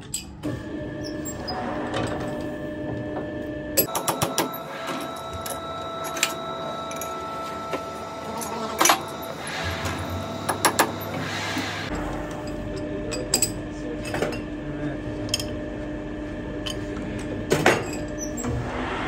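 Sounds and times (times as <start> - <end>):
steady hum: 17.8 - 19.0.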